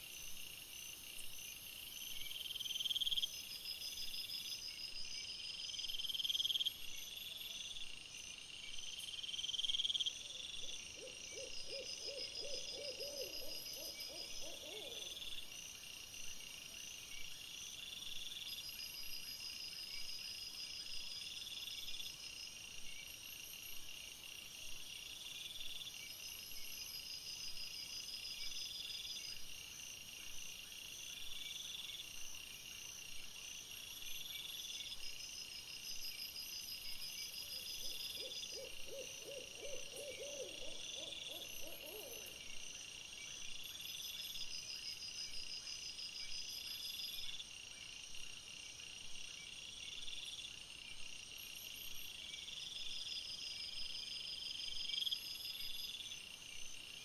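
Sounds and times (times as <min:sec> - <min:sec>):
owl hooting: 0:11.0 - 0:15.1, 0:37.8 - 0:42.4
night chirping calls: 0:37.5 - 0:42.4.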